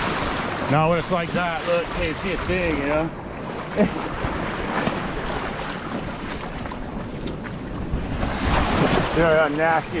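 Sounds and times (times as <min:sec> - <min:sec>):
small waves washing: 0:00.0 - 0:10.0
wind on microphone: 0:02.2 - 0:10.0.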